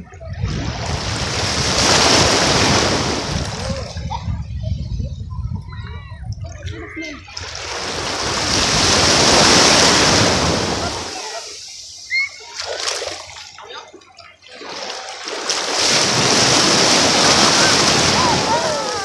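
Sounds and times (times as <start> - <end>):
small waves breaking on sand: 0.4 - 3.9, 7.3 - 13.6, 14.5 - 19.0.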